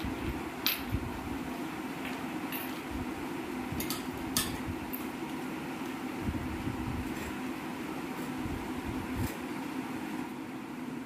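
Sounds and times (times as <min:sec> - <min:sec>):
room fan humming: 0:00.0 - 0:11.0.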